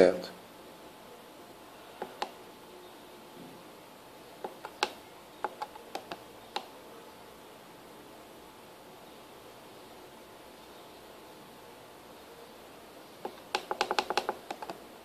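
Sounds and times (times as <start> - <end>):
push buttons clicking: 4.4 - 6.7, 13.3 - 14.8.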